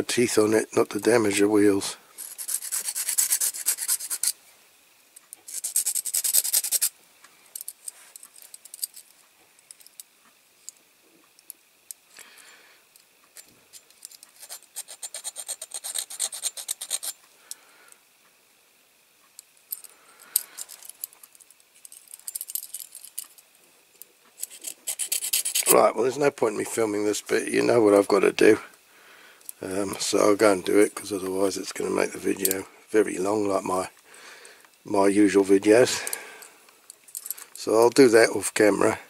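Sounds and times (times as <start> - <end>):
hand file rasping on metal: 2.2 - 4.3, 14.4 - 17.2, 24.5 - 25.8.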